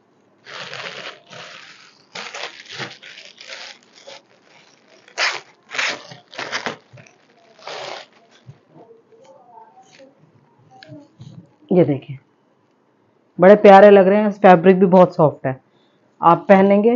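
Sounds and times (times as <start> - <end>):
plastic bag crinkling: 0.4 - 8.5.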